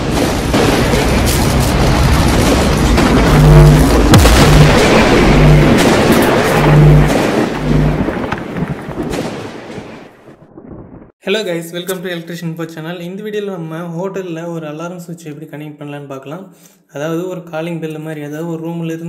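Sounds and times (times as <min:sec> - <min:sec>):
boom-like hits: 0:00.0 - 0:11.1
cinematic rushing rumble: 0:00.2 - 0:09.2
low humming pulse: 0:01.7 - 0:08.6.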